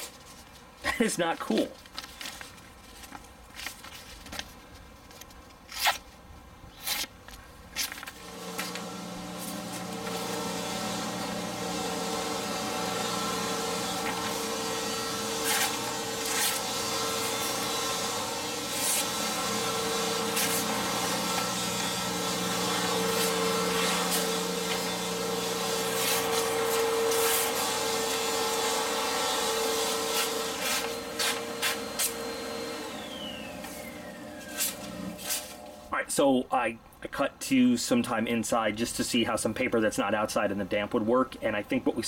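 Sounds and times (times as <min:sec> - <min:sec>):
knife slicing through paper: 0:06.7 - 0:07.1, 0:15.4 - 0:17.6, 0:18.7 - 0:19.1, 0:20.3 - 0:21.5, 0:25.8 - 0:27.7, 0:34.4 - 0:35.7
vacuum cleaner motor hum: 0:08.2 - 0:35.9.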